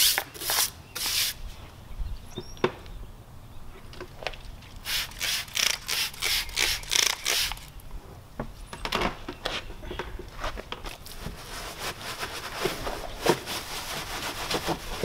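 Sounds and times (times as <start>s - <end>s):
brush scraping and rubbing: 0.0s - 1.4s, 10.4s - 15.0s
spray bottle hissing: 0.0s - 1.4s, 4.9s - 7.7s.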